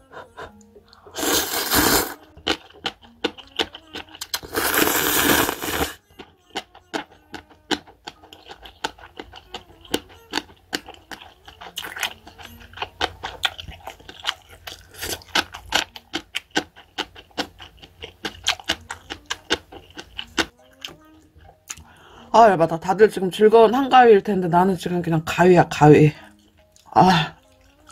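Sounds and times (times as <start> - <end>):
wet chewing: 0.1 - 21.9, 26.2 - 27.9
person slurping noodles: 1.0 - 2.6, 4.2 - 6.0.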